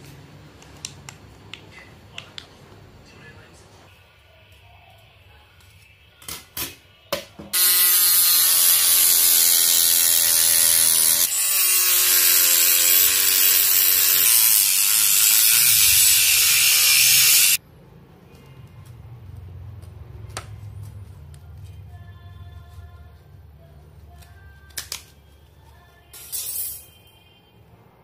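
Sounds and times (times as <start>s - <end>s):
rotary tool grinding whine: 7.6s - 17.6s.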